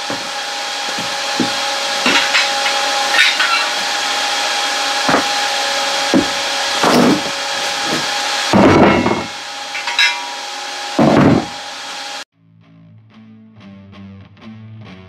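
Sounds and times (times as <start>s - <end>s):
workshop hum and hiss: 0.0s - 12.2s
metal parts knocking and clattering: 1.4s - 3.8s, 6.2s - 10.4s.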